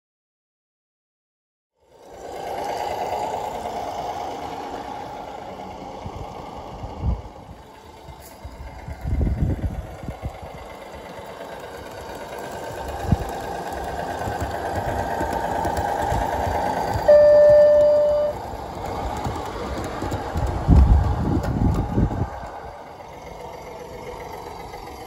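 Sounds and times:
model locomotive motor whine: 1.8 - 25.0
locomotive horn blast: 17.1 - 18.4.

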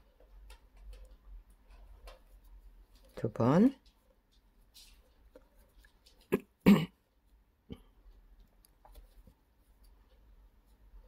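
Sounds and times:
person coughing: 6.3 - 7.0.

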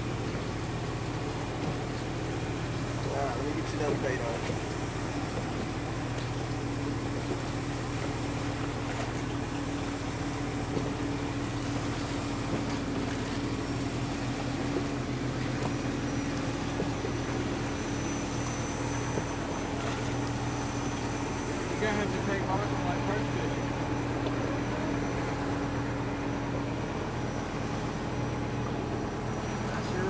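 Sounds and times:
boat motor humming: 0.0 - 30.0.

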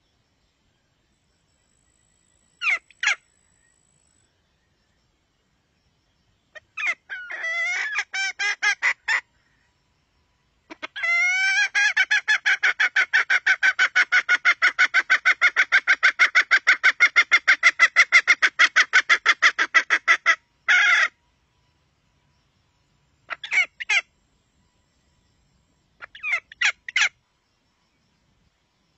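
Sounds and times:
hen clucking rapidly: 10.7 - 21.1, 23.3 - 24.1.

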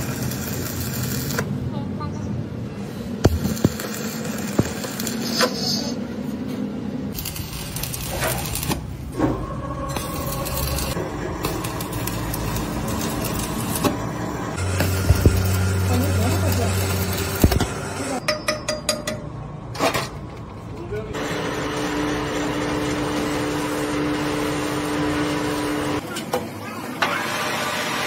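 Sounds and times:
welding arc crackling and hissing: 0.0 - 1.5, 3.2 - 6.0, 7.1 - 9.0, 9.9 - 18.2, 21.2 - 26.0.

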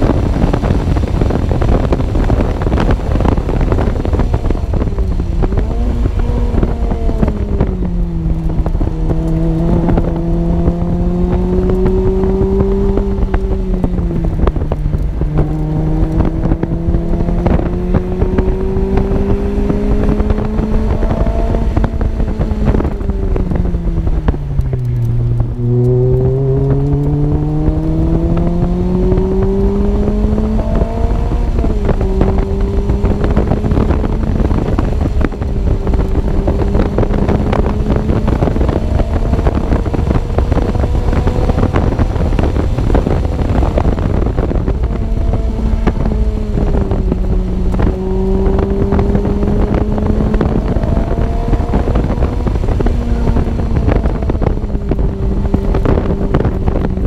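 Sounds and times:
car engine revving at speed: 0.0 - 57.0
wind buffeting microphone: 0.0 - 57.0.

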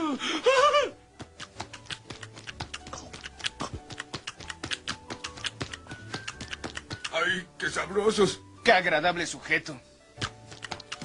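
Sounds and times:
quiet background music: 0.0 - 11.0
cartoon chomping clicks: 1.2 - 7.2, 10.2 - 11.0.

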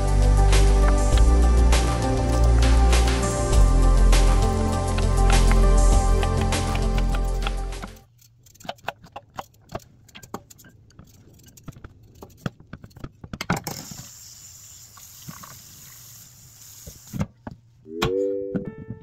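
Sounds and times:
steady hiss: 13.7 - 17.4.

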